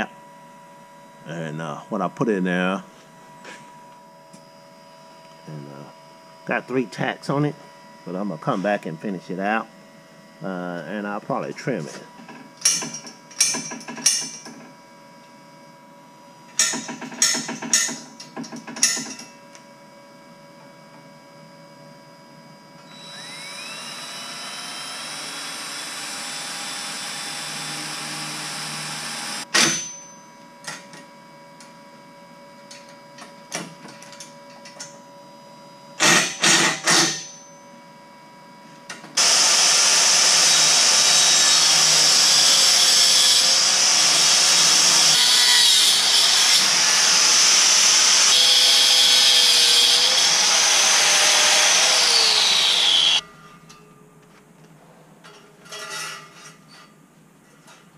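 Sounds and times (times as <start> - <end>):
cordless drill boring into steel: 22.9 - 29.5, 39.2 - 53.2
angle grinder cutting steel mesh: 39.2 - 53.2.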